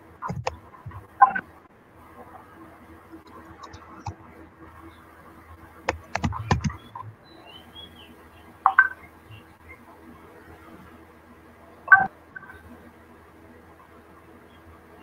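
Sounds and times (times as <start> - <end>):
faint steady hum: 0.0 - 15.0
sharp clicks and knocks: 0.2 - 1.4, 5.9 - 7.1.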